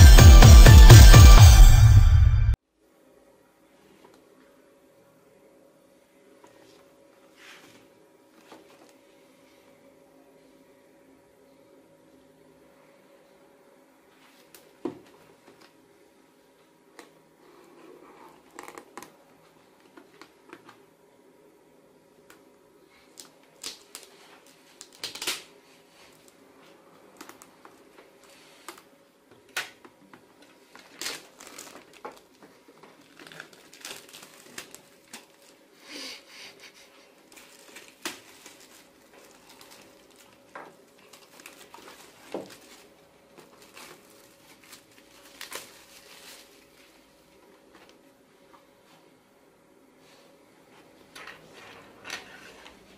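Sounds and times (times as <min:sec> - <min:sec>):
plastic wrap crinkling and tearing: 0:23.1 - 0:25.5, 0:30.7 - 0:35.6, 0:37.3 - 0:47.0.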